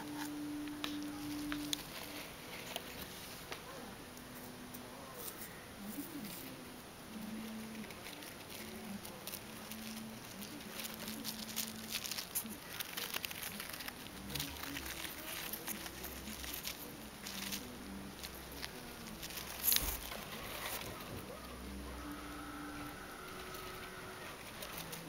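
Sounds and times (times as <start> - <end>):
hamster rustling paper bedding: 0.0 - 4.5, 7.2 - 25.0.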